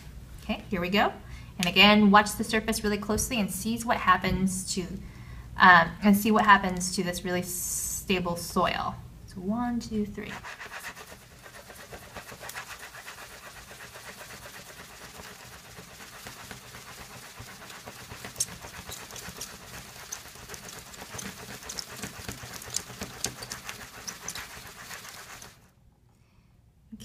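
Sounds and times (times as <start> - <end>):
wet sand swishing in tray: 10.3 - 25.6.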